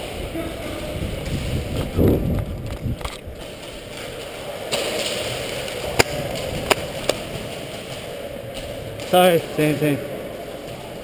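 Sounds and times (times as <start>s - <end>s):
running footsteps on concrete: 0.8s - 9.4s.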